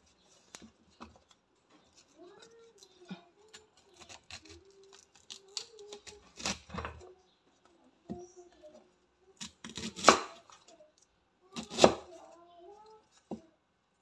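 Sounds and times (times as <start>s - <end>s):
knife cutting cauliflower on board: 3.5s - 7.0s, 9.4s - 10.5s, 11.6s - 12.2s.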